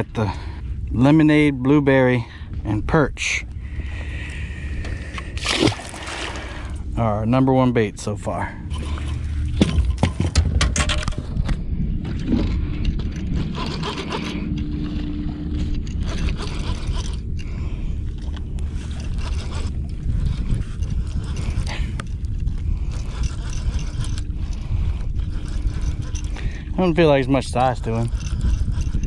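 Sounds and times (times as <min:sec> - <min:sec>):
steady low rumble: 0:00.0 - 0:29.0
fishing reel whirring and clicking: 0:12.1 - 0:29.0.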